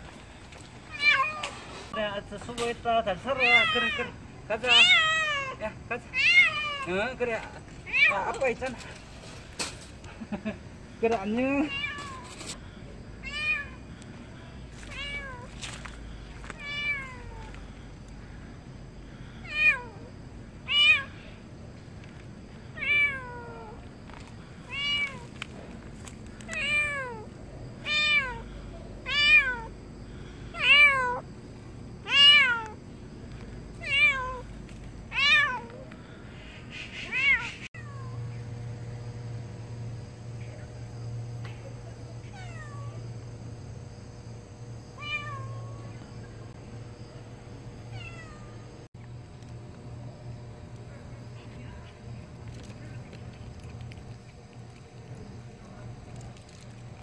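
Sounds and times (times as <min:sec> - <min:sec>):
cat meowing: 0:00.9 - 0:01.5, 0:03.4 - 0:06.9, 0:11.6 - 0:12.3, 0:14.9 - 0:15.6, 0:16.5 - 0:17.5, 0:22.8 - 0:23.8, 0:24.7 - 0:25.2, 0:26.5 - 0:28.4, 0:30.6 - 0:31.2, 0:32.1 - 0:32.8, 0:33.8 - 0:34.5, 0:45.0 - 0:45.8, 0:47.9 - 0:48.6.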